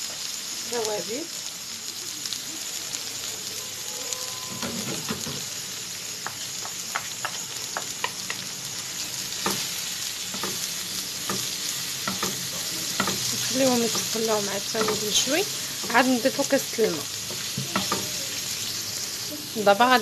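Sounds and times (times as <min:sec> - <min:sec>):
vegetables sizzling in oil: 0:00.0 - 0:20.0
wooden spoon scraping a pan: 0:09.4 - 0:19.2.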